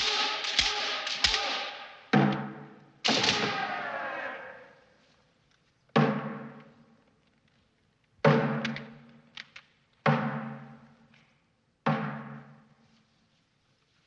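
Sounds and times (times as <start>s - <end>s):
drum strikes ringing: 0.0s - 3.7s, 6.0s - 6.6s.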